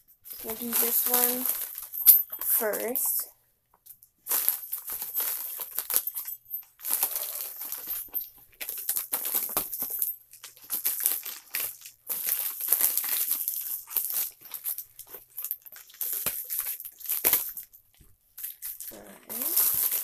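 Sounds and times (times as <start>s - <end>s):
plastic envelope crinkling: 0.3s - 2.0s, 18.5s - 20.0s.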